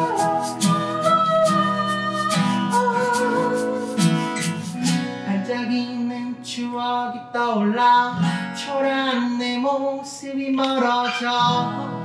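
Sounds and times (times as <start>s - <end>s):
man singing: 0.0s - 4.1s, 5.2s - 12.0s
egg shaker: 0.0s - 5.0s
acoustic guitars strumming: 0.0s - 12.0s.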